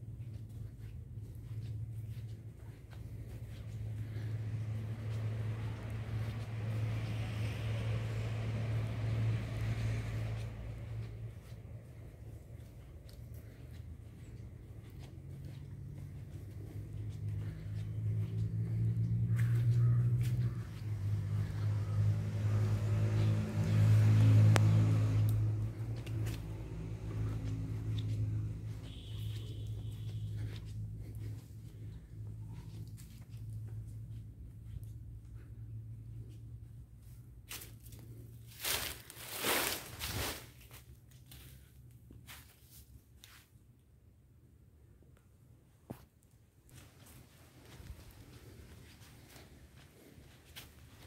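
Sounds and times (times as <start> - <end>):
low engine hum: 0.0 - 43.1, 44.0 - 51.0
footsteps: 0.0 - 43.5, 46.7 - 51.0
leaves rustling: 37.5 - 43.3.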